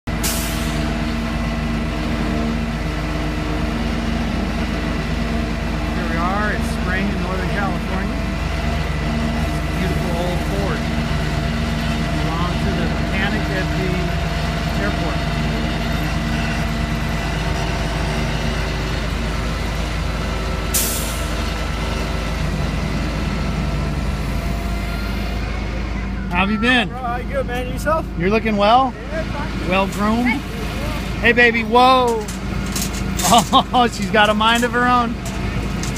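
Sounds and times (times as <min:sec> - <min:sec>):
truck engine running: 0:00.0 - 0:35.9
winch pulling: 0:29.5 - 0:35.9.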